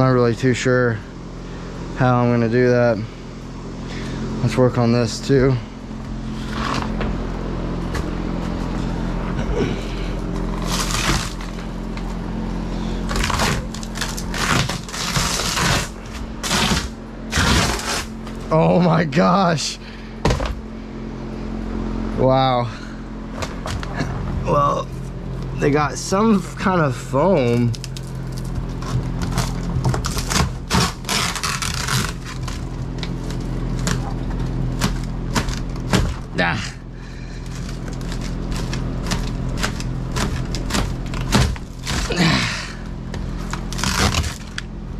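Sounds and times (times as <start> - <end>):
steady hum: 0.0 - 44.9
rotten wood being torn up: 5.5 - 12.3, 12.9 - 19.0, 23.4 - 24.3, 27.2 - 44.8
plywood crunching and cracking: 5.9 - 18.5, 23.3 - 25.6, 27.2 - 44.9
tearing scraping rasp: 6.2 - 7.2, 8.4 - 18.5, 27.4 - 36.4, 37.0 - 44.8.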